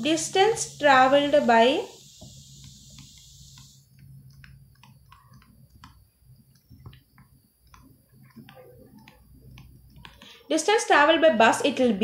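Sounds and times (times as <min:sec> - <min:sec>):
stylus tapping on tablet screen: 0:02.0 - 0:10.4.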